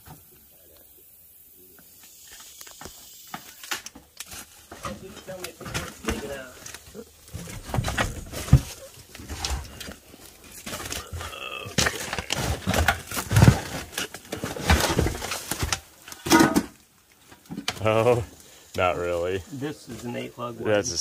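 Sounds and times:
boards and junk clattering: 3.4s - 17.9s.

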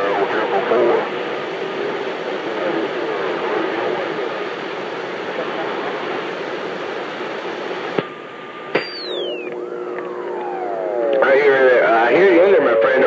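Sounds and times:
radio static hiss: 0.0s - 13.0s
falling electronic whistle: 8.7s - 12.8s
radio clicks: 8.8s - 11.5s
steady beep: 8.8s - 12.6s.

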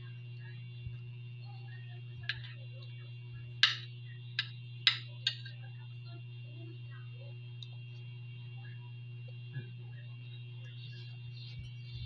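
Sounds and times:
steady low hum: 0.0s - 12.0s
cutlery clinking against a plate: 3.6s - 5.6s.

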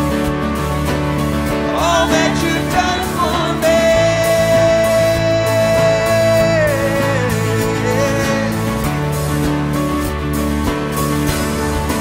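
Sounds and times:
electric guitar chords: 0.0s - 12.0s
keyboard chords: 0.0s - 12.0s
person singing: 1.6s - 9.2s.

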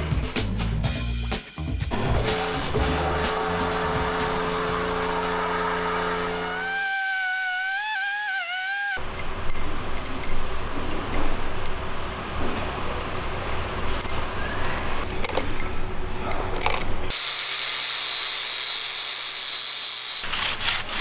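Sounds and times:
metal valve parts clinking: 9.0s - 17.1s.

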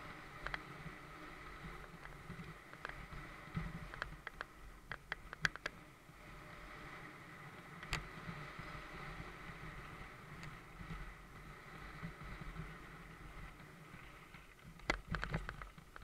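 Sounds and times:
bike tyre rumble on dirt: 0.0s - 16.0s
bike clacking and rattling: 3.8s - 5.8s.

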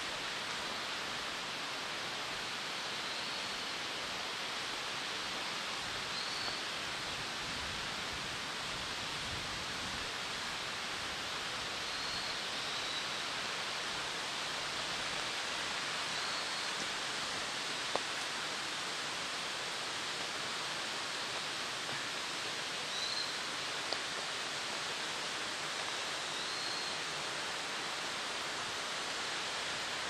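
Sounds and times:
forest ambience hiss: 0.0s - 30.0s
small tick: 17.9s - 18.2s.

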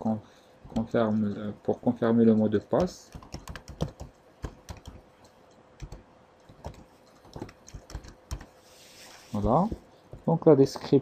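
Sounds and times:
keyboard keystrokes clicking: 2.8s - 5.0s, 5.8s - 8.5s.

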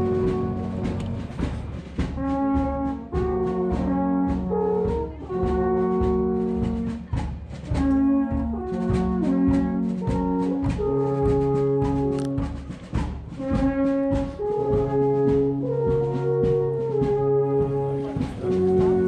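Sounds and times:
alphorns playing in harmony: 0.0s - 19.0s.

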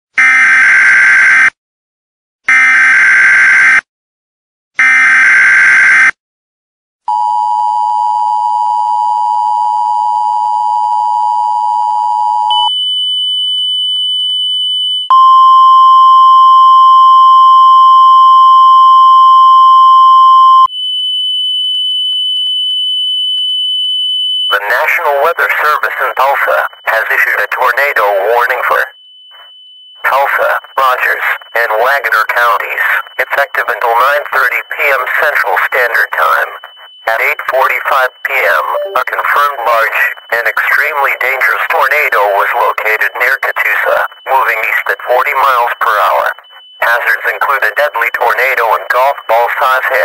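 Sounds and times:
single-pitch warning alarm tone: 7.1s - 50.0s
two-tone attention signal: 15.1s - 20.7s, 24.5s - 50.0s
digital header data bursts: 24.6s - 50.0s.

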